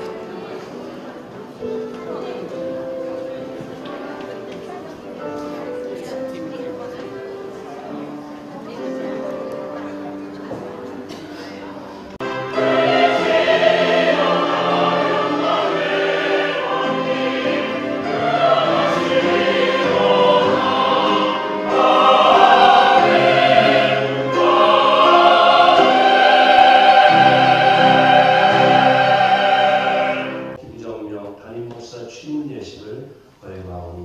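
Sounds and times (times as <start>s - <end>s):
church choir singing: 0.0s - 30.6s
string ensemble: 11.8s - 30.6s.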